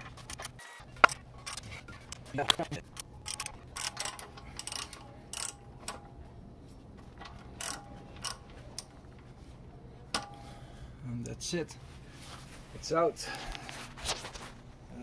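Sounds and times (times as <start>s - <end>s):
ratchet wrench clicking: 3.0s - 5.6s, 7.6s - 8.9s.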